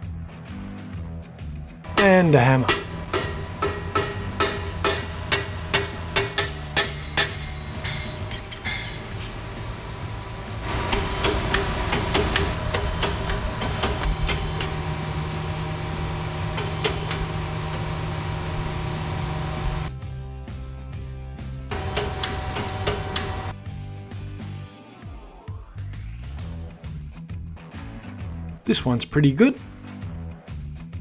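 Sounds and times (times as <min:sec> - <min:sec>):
hammer striking metal frame: 0:01.9 - 0:09.5, 0:10.6 - 0:18.2, 0:21.7 - 0:23.5
metal frame clinks and knocks: 0:07.9 - 0:09.0.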